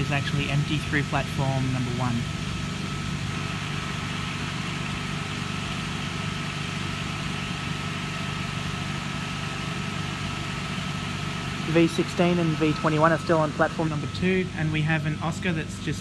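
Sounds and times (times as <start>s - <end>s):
electric train humming: 0.0s - 16.0s.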